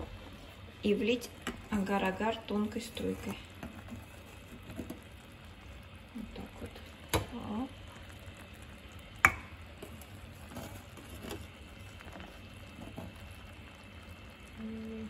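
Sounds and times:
spoon stirring thick jam: 0:00.0 - 0:05.5, 0:09.8 - 0:13.5.

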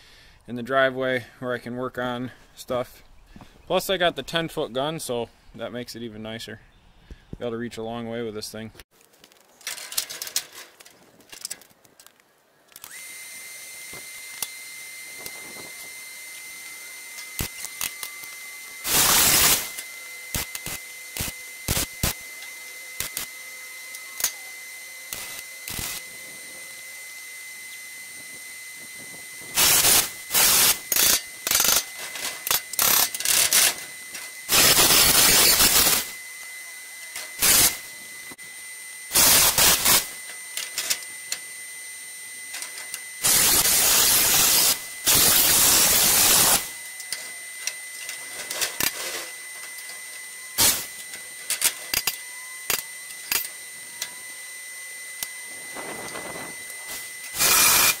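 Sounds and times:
welding arc crackle: 0:09.0 - 0:26.1, 0:26.8 - 0:38.4, 0:39.1 - 0:41.4, 0:42.5 - 0:54.1, 0:55.2 - 0:58.0.

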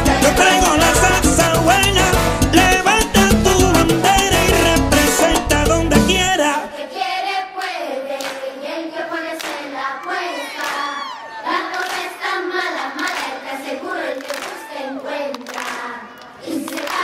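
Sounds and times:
dance music: 0:00.0 - 0:06.7
people clapping: 0:07.6 - 0:08.5, 0:09.3 - 0:17.0
children cheering and screaming: 0:09.9 - 0:11.8, 0:14.4 - 0:15.4.

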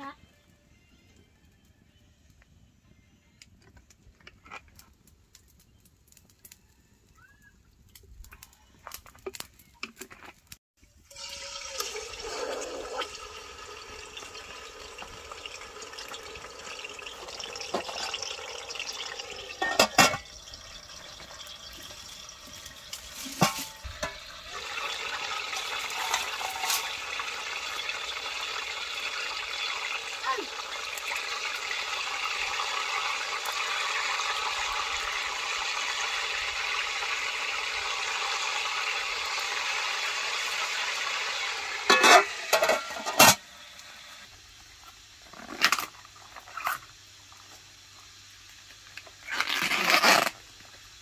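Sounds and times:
chicken sizzling in hot oil: 0:10.5 - 0:51.0.

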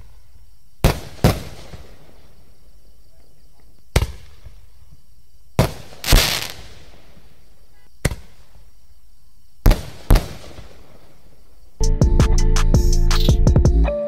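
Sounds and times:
firework burst with hissing tail: 0:00.8 - 0:02.4, 0:05.6 - 0:07.4, 0:09.6 - 0:11.4
firework bangs: 0:00.8 - 0:02.6, 0:03.9 - 0:04.8, 0:05.6 - 0:08.7, 0:09.6 - 0:11.5.

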